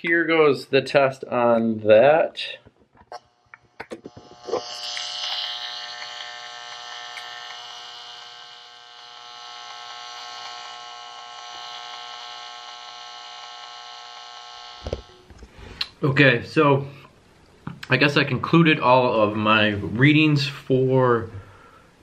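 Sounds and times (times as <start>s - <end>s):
meter speaker electric buzz: 3.1s - 15.5s.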